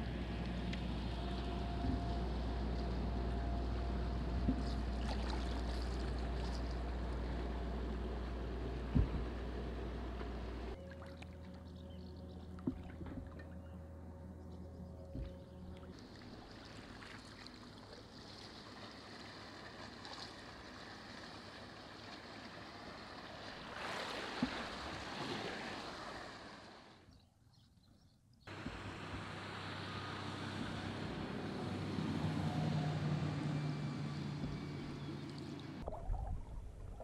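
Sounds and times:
low steady hum: 0:00.0 - 0:27.3, 0:28.3 - 0:37.0
water washing around a canoe: 0:04.5 - 0:06.9, 0:16.0 - 0:27.0.

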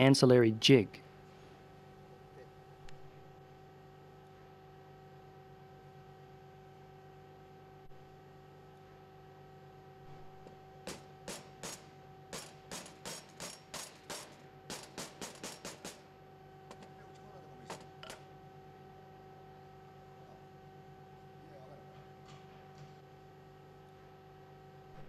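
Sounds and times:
steady low hum: 0:00.0 - 0:25.0
sharp metallic taps: 0:10.8 - 0:16.0.

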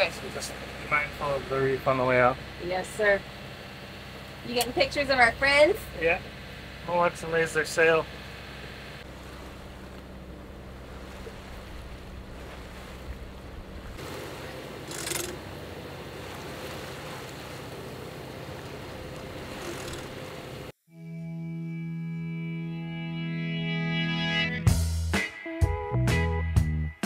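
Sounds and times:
boat engine hum: 0:00.0 - 0:22.9
wind and water rushing: 0:09.0 - 0:20.7
guitar music: 0:21.0 - 0:27.0.

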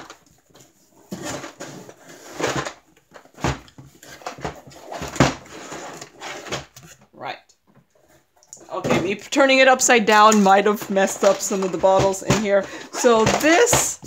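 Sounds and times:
cardboard box rustling and scraping: 0:00.4 - 0:07.0.

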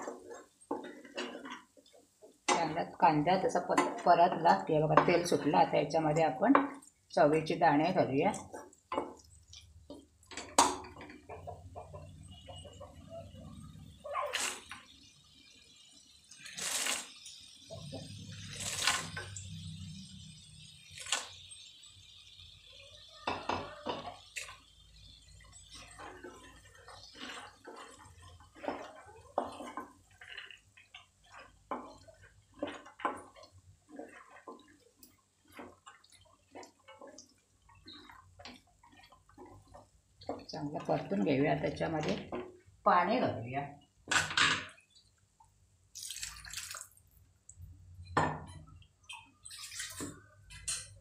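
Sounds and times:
spatula scraping thick sauce in pan: 0:00.0 - 0:01.7, 0:24.0 - 0:40.5.

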